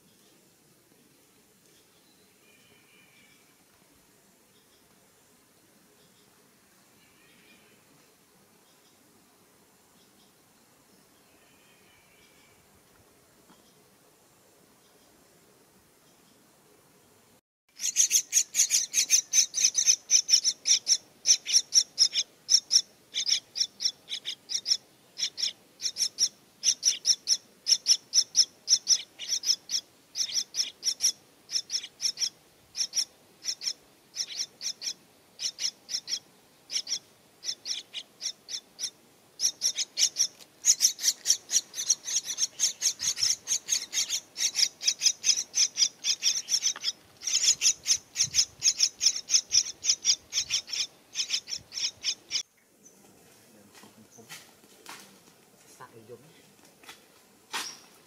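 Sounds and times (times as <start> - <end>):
parrot nestlings begging calls: 17.7 - 52.4.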